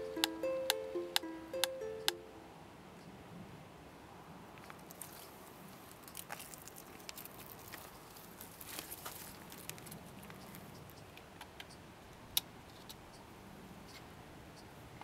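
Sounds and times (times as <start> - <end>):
fingers tapping wooden metronome: 0.0 - 2.4.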